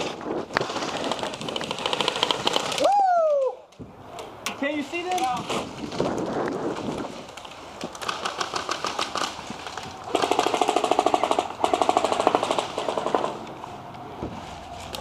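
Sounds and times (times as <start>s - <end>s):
airsoft rifles firing full auto: 0.6s - 2.8s, 10.1s - 13.4s.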